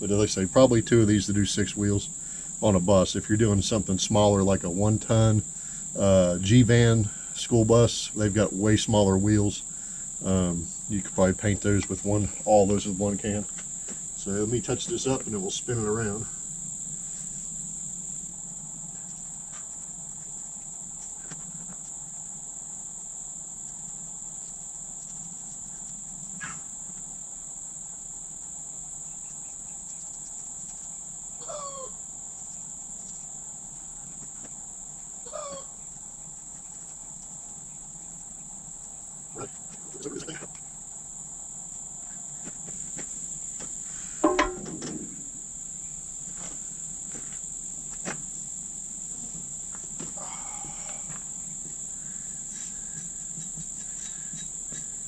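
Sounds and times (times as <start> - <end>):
high-pitched insect chorus: 0.0 - 55.0
sharp knock: 44.2 - 45.3.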